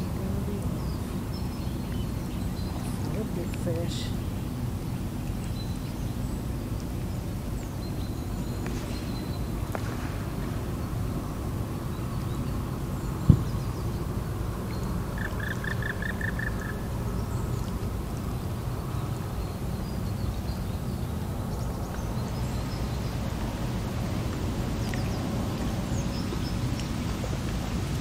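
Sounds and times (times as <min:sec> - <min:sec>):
steady low rumble: 0:00.0 - 0:28.0
bird chirping: 0:14.7 - 0:17.7.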